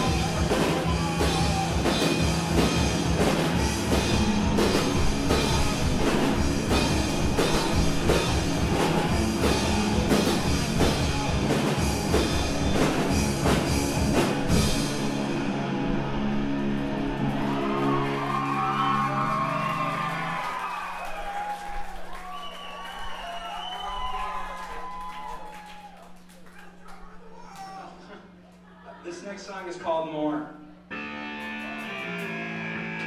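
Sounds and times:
live rock band playing: 0:00.0 - 0:19.3, 0:30.9 - 0:33.0
drum kit: 0:00.0 - 0:20.6.

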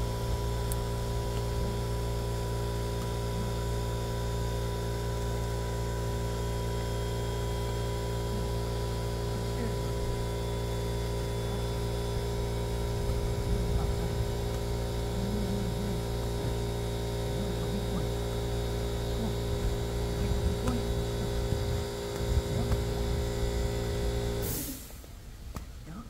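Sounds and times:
steady multi-tone hum: 0:00.0 - 0:26.0
wind rumble on microphone: 0:20.2 - 0:23.6.

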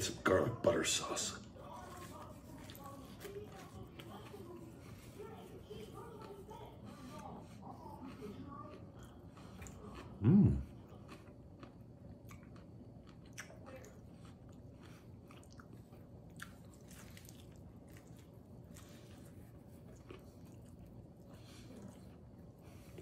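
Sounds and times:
chewing pizza: 0:00.0 - 0:23.0
soft crunches and mouth clicks: 0:08.0 - 0:23.0.

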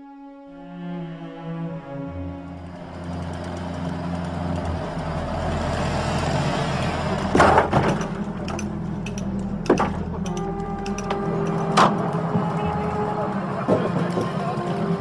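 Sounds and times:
heavy vehicle engine running: 0:02.5 - 0:15.0
loud knocks: 0:07.3 - 0:08.3.

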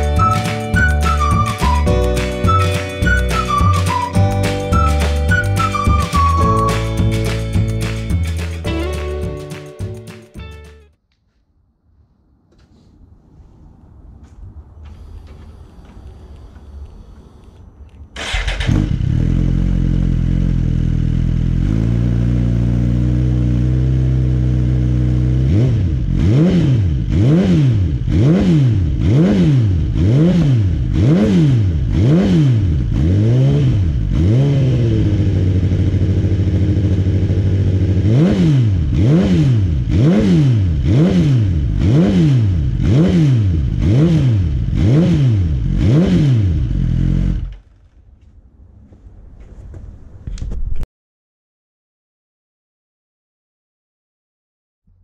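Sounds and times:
motorcycle engine revving: 0:18.2 - 0:49.0.

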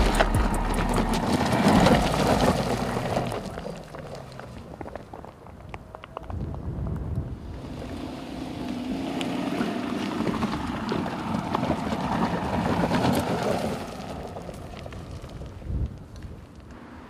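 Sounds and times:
stones clicking: 0:00.0 - 0:06.6
car engine climbing: 0:00.0 - 0:17.0
tyres on loose ground: 0:00.0 - 0:17.0.

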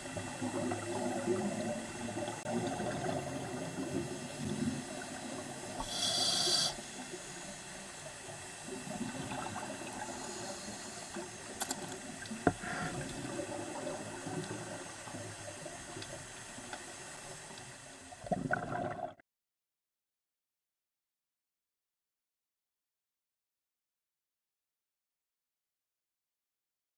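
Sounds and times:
underwater bubbling and gurgling: 0:00.0 - 0:19.2
short hissing burst: 0:05.8 - 0:07.5.

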